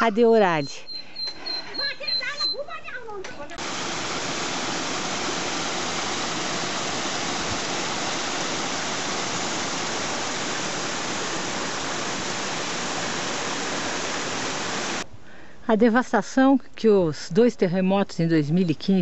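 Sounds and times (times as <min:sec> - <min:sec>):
stream tumbling over rocks: 0:03.6 - 0:15.0.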